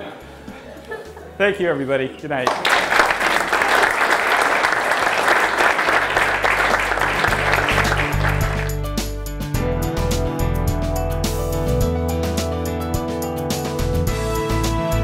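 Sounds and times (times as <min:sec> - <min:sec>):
background music: 0:00.0 - 0:15.0
audience applauding: 0:02.5 - 0:08.9.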